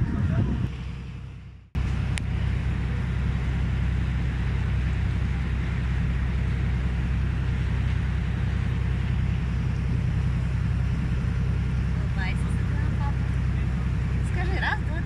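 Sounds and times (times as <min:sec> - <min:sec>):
boat engine droning: 0:00.0 - 0:15.0
wind and water hiss: 0:01.8 - 0:15.0.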